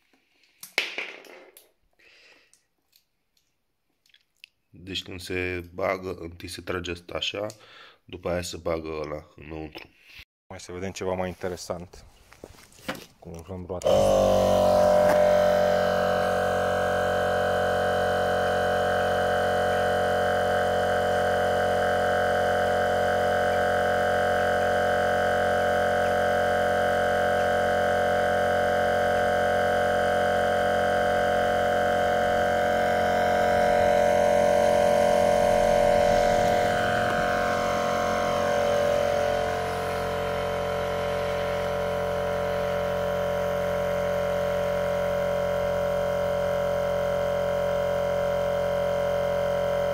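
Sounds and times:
tyre compressor motor hum: 0:13.8 - 0:49.9.

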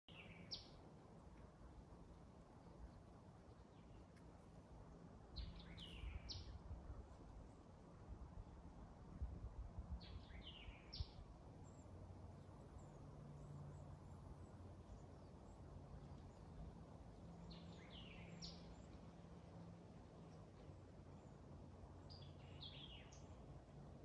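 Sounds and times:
bird chirping: 0:00.1 - 0:00.8, 0:05.4 - 0:06.6, 0:10.0 - 0:19.0, 0:22.0 - 0:23.4
low steady hum: 0:00.1 - 0:24.0.

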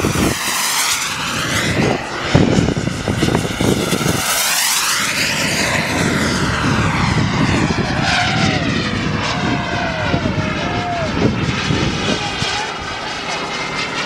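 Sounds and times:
model jet turbine whine: 0:00.0 - 0:14.0.

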